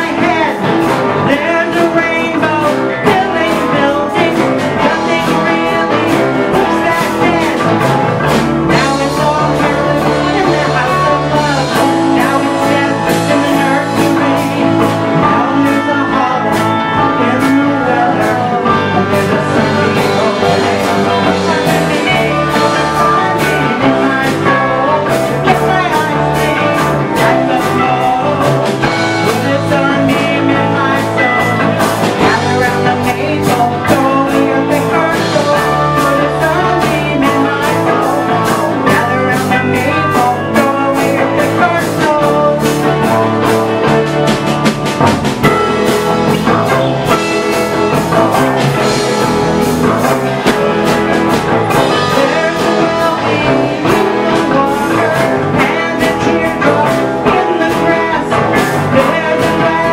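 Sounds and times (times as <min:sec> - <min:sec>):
rock band playing: 0:00.0 - 0:59.9.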